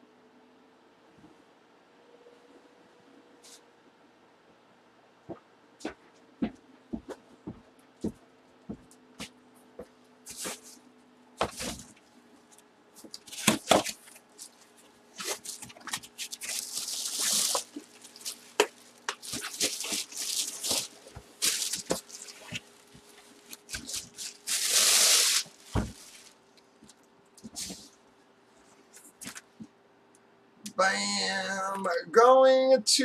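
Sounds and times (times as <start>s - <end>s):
packing material rustling: 10.3s - 10.8s, 11.4s - 12.1s, 13.0s - 27.9s.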